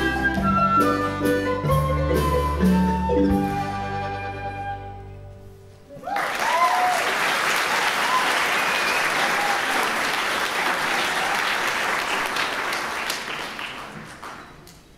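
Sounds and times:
short cheers: 5.9 - 11.8
audience applauding: 6.0 - 14.9.

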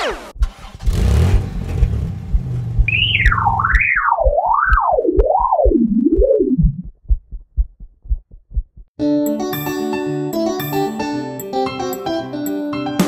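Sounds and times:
low rumble: 1.2 - 8.9
low heartbeat-like thump: 1.3 - 9.0.

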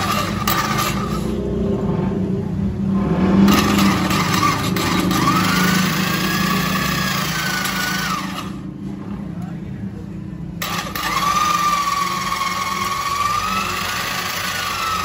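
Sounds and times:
drill hone grinding: 0.0 - 1.4, 3.5 - 8.6, 10.6 - 15.0.

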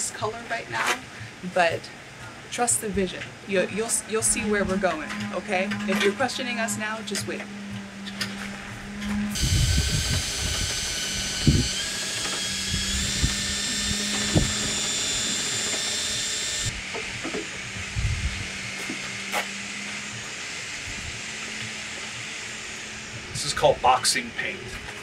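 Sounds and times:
power drill mixing paint: 8.2 - 23.7.

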